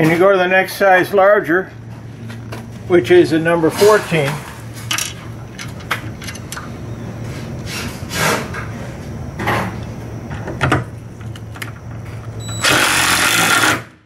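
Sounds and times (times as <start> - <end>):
steady low hum: 0.0 - 14.0
tools and screws clicking: 4.9 - 6.7.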